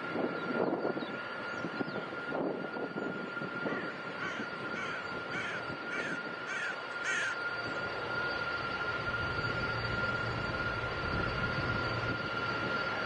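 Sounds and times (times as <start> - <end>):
jet engines at take-off: 0.0 - 13.0
bird calling: 3.7 - 7.4.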